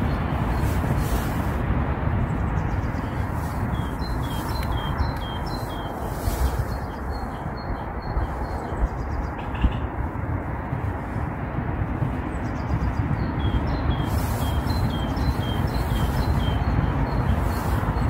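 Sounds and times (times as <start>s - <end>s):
wind rumble on microphone: 0.0s - 18.0s
small birds calling: 2.4s - 10.0s, 12.2s - 18.0s.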